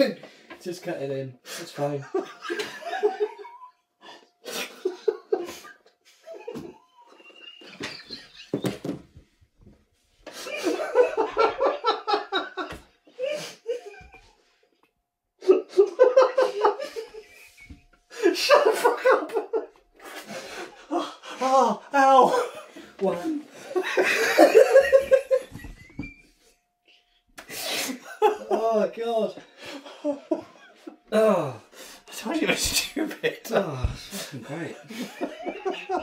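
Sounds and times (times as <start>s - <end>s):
breaths: 0.2s - 0.6s, 31.6s - 32.1s
man laughing hard: 4.5s - 8.8s, 10.4s - 14.3s, 15.4s - 17.5s, 18.1s - 26.1s, 27.9s - 29.1s, 29.7s - 31.6s, 34.8s - 36.0s.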